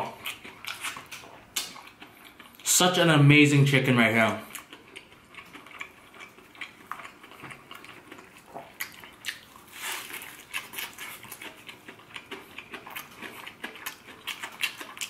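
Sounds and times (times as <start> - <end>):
crunching fried chicken: 4.4 - 15.0.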